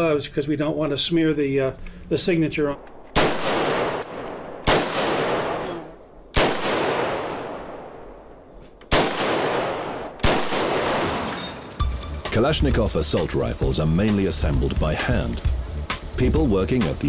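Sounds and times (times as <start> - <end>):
rifle shots with echo: 3.1 - 8.2, 8.9 - 11.2.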